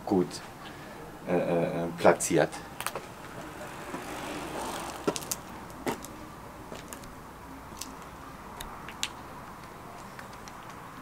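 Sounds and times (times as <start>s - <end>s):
room noise: 0.4s - 8.2s.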